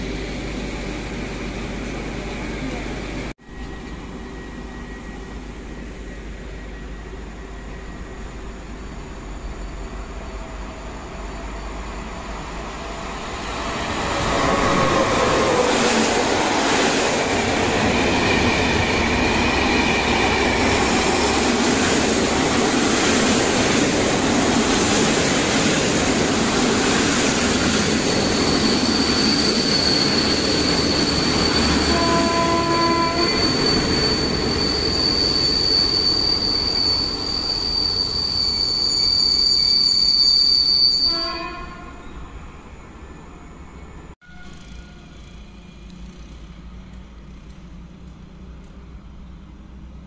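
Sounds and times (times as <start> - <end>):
train wheels rumbling on rails: 0.0 - 38.8, 44.4 - 50.0
high-pitched wheel squeal: 27.8 - 42.2, 43.7 - 45.5
short squeals: 28.2 - 42.2.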